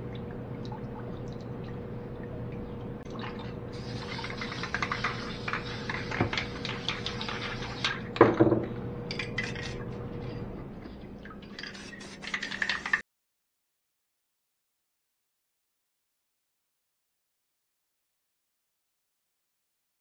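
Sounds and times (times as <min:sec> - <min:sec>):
water sloshing: 0:00.0 - 0:08.2
faint steady hum: 0:00.0 - 0:13.0.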